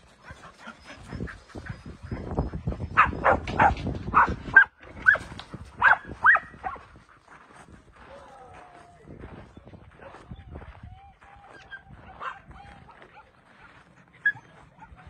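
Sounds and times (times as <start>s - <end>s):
dogs barking and yelping: 0.0s - 7.3s, 9.9s - 15.0s
paws running on gravel: 5.1s - 15.0s.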